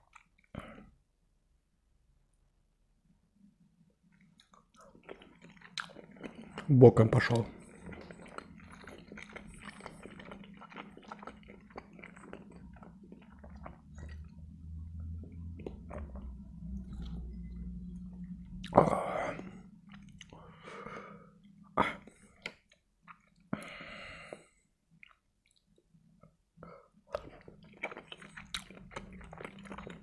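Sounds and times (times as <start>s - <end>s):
chewing with wet mouth clicks: 0.0s - 0.6s, 4.1s - 14.4s, 15.2s - 17.5s, 19.4s - 20.4s, 22.2s - 23.6s, 25.0s - 25.9s, 27.1s - 30.0s.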